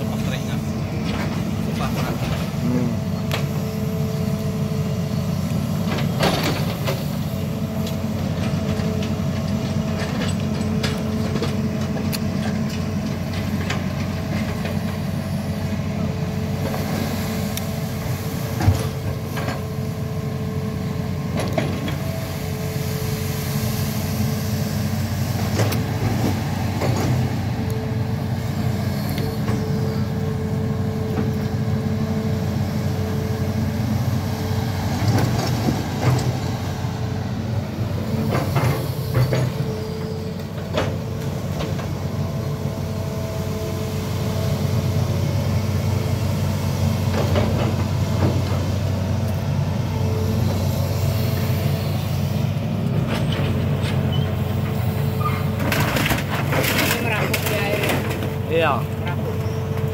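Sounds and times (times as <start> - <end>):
excavator diesel engine running: 0.0 - 59.9
hydraulic whine: 13.3 - 59.9.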